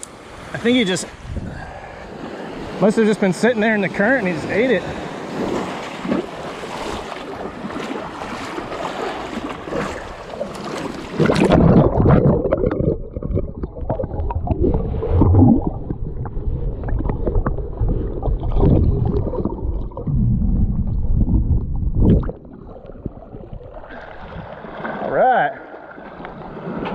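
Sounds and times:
shallow surf washing and fizzing: 0.1 - 20.0, 22.1 - 26.9
underwater sloshing and gurgling: 3.5 - 26.9
underwater knocks: 11.2 - 23.6.

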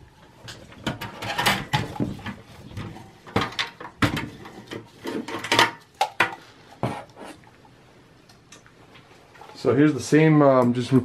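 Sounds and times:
sheet metal clunks and scrapes: 0.5 - 5.8.

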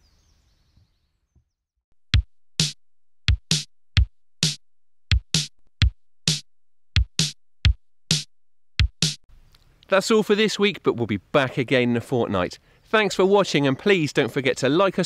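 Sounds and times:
drum machine beat: 2.0 - 9.3.

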